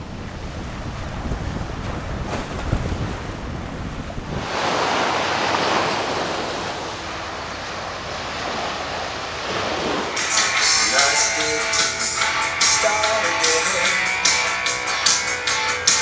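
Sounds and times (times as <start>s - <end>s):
wind buffeting microphone: 0.0s - 10.4s
small waves washing on sand: 0.0s - 11.6s.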